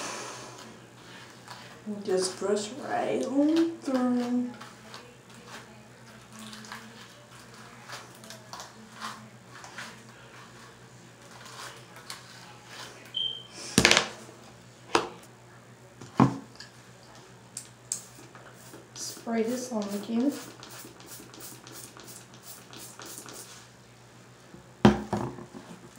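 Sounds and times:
hairbrush strokes through hair: 0:18.6 - 0:23.7
knocks on countertop: 0:24.8 - 0:25.5.

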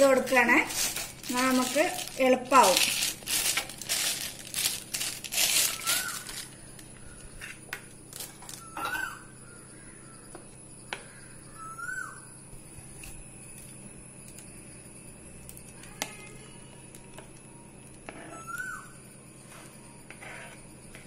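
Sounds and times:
plastic bag crinkling: 0:00.0 - 0:07.0.

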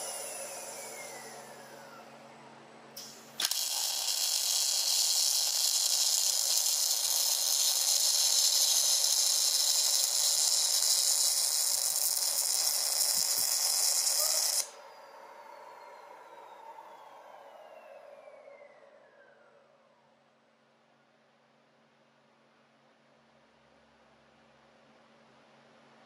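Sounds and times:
faint falling whine: 0:00.0 - 0:21.5
welding arc buzzing: 0:03.0 - 0:14.7.

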